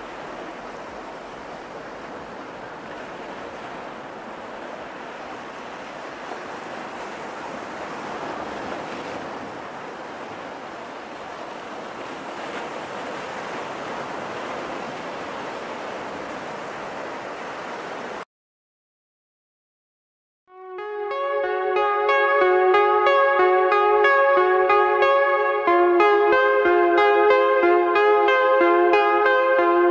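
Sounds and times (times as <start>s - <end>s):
waves washing on shore: 0.0s - 18.2s.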